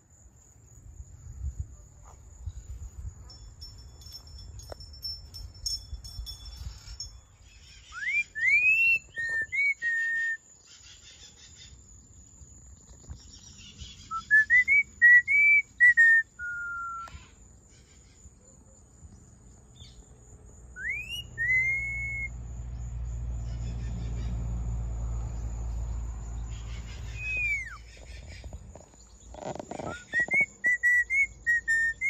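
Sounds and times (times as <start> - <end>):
parrot whistling: 27.1 - 27.8, 29.8 - 32.0.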